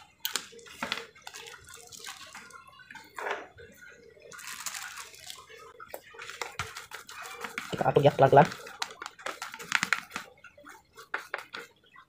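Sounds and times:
plastic bag rustling: 4.3 - 10.4.

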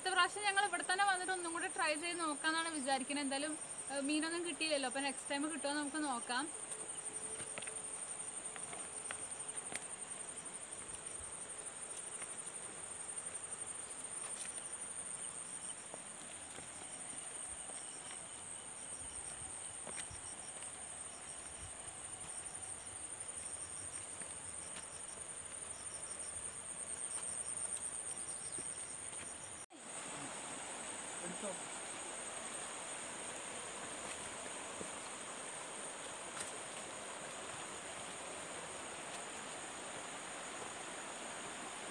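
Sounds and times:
insects trilling: 0.1 - 41.9
pulsing insect call: 6.2 - 41.9
footsteps on rocky dirt path: 15.8 - 18.4, 19.2 - 20.7, 33.7 - 39.3.

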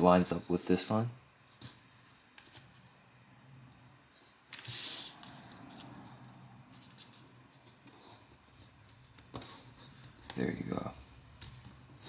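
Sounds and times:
paper sliding swish: 4.5 - 6.0.

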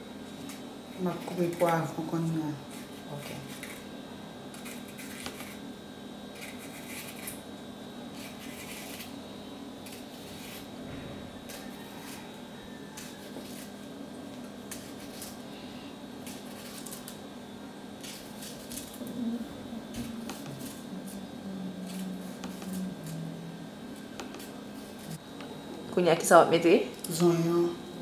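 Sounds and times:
steady low hum: 0.0 - 28.0
knife cutting bell pepper: 4.5 - 5.6, 6.4 - 7.4, 8.2 - 9.1, 12.9 - 13.8, 14.4 - 15.4, 16.2 - 17.2, 18.0 - 21.2, 21.8 - 23.2.

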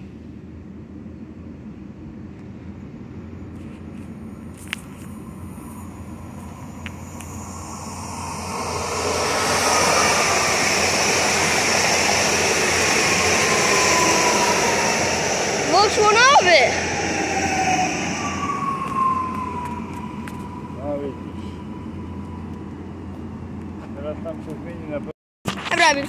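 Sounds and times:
train wheels rushing: 3.6 - 25.1
faint whine falling in pitch: 5.0 - 24.1.

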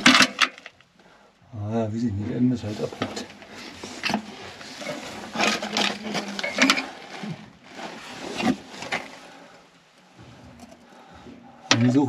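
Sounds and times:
person crawling over rubble: 2.6 - 9.7
stones rattling: 2.8 - 9.3.

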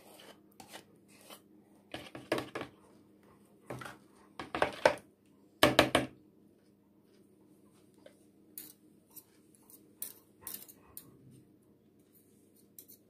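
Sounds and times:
metal spoon scraping plastic bowl: 0.0 - 2.7.

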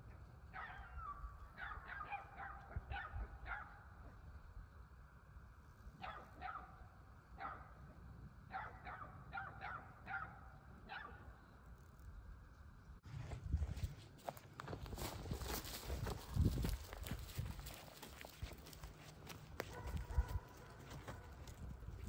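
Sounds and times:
dog barking faintly: 19.6 - 21.3.

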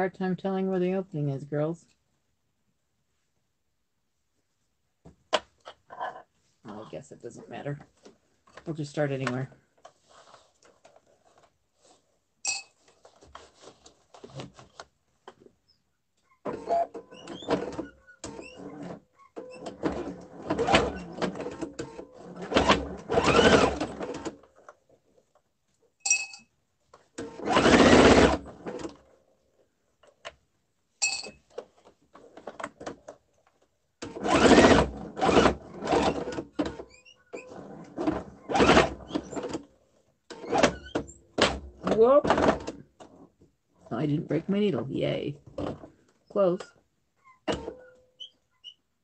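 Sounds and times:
sewing machine stitching: 16.5 - 24.4, 27.2 - 29.0, 34.0 - 39.6.

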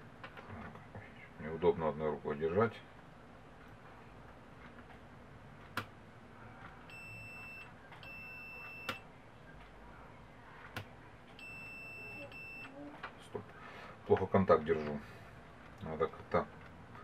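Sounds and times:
multimeter high beep: 6.9 - 9.1, 11.4 - 12.8.

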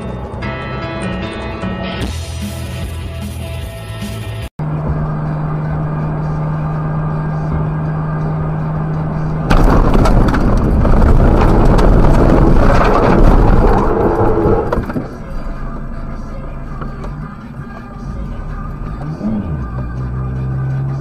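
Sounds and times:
car road drone: 0.0 - 21.0
tyres rumbling over rough ground: 4.6 - 21.0.

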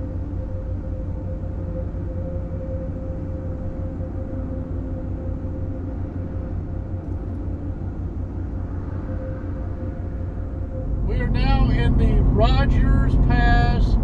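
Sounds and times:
truck road and engine rumble: 10.8 - 14.0.

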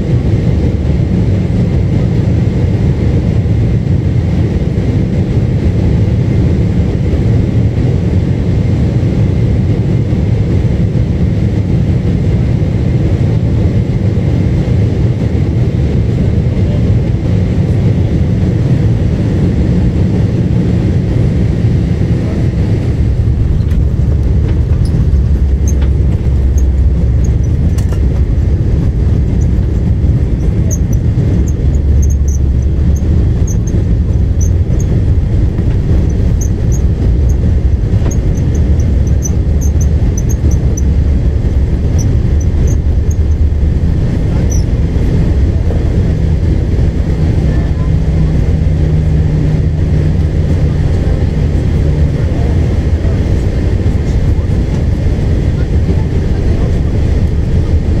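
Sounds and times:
airliner cabin rumble: 0.0 - 58.0
faint high squeaks: 30.4 - 33.8.

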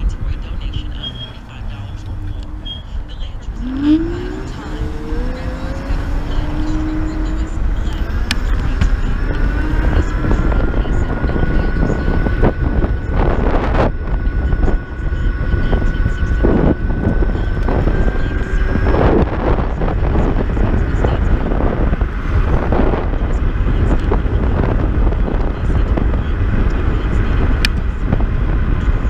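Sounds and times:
electric scooter high whine: 3.5 - 29.0
wind buffeting on microphone: 3.5 - 29.0.

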